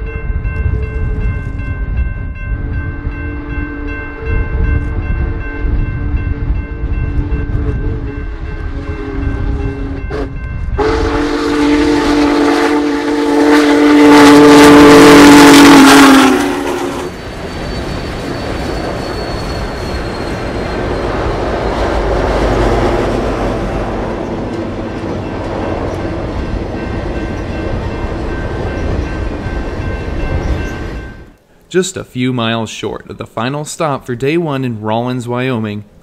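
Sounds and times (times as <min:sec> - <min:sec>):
train wheels on rails: 0:00.4 - 0:31.5
steam whistle blasts: 0:07.2 - 0:17.2.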